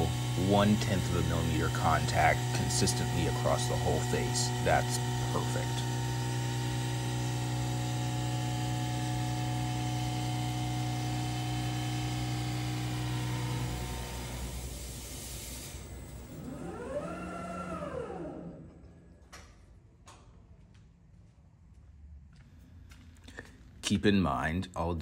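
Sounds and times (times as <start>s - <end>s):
lathe cutting hum and hiss: 0.0s - 18.6s
machine whine rising and falling: 0.0s - 19.2s.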